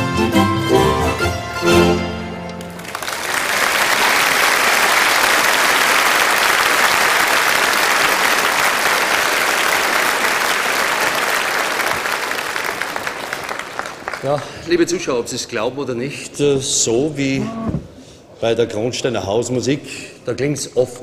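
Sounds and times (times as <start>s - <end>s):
audience applauding: 2.6s - 14.6s.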